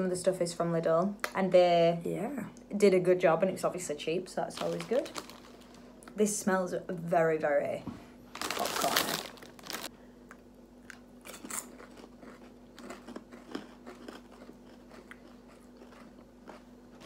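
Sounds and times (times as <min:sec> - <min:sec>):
popcorn crunching: 0:04.5 - 0:05.9, 0:08.3 - 0:17.0.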